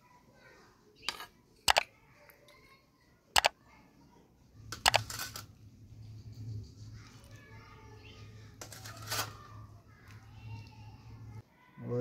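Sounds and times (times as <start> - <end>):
mouse clicks: 3.4 - 3.6.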